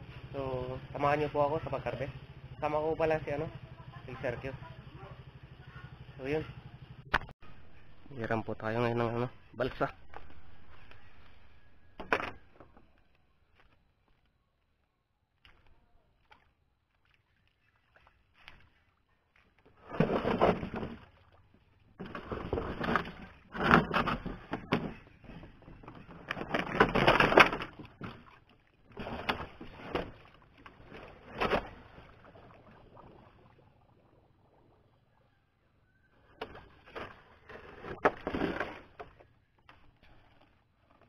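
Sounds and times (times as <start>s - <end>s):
water splashing: 15.4s - 39.2s.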